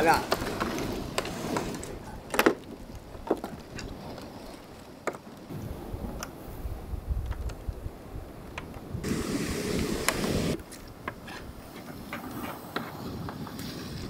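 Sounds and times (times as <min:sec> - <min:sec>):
wind buffeting microphone: 0:05.5 - 0:14.0
rush of hiss: 0:09.0 - 0:10.6.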